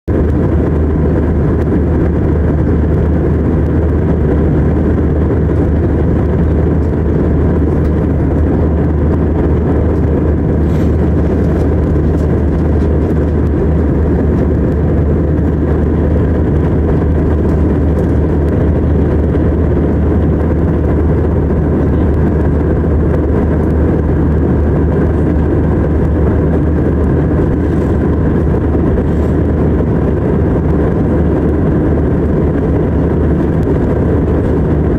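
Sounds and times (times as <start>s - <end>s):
airliner cabin engine drone: 0.1s - 34.9s.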